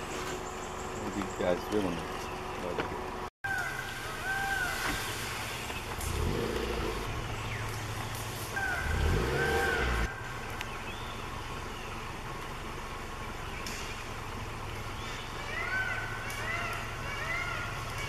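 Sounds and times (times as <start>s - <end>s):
vehicle engine rumbling: 0.0s - 18.0s.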